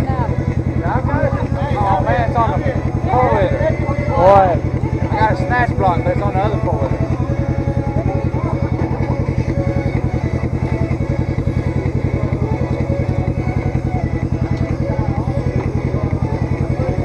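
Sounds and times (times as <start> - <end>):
atv engine idling: 0.0 - 17.0.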